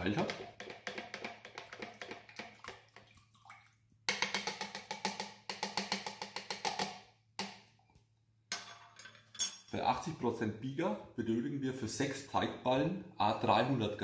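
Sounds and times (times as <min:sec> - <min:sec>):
spoon clicking in plastic jug: 0:00.2 - 0:02.8, 0:04.1 - 0:07.5.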